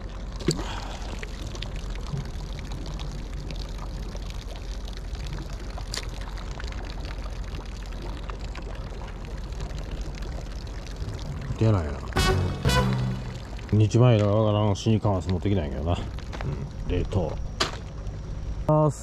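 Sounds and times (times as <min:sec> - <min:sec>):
water trickling and lapping: 0:00.0 - 0:18.7
low rumble: 0:06.4 - 0:14.0.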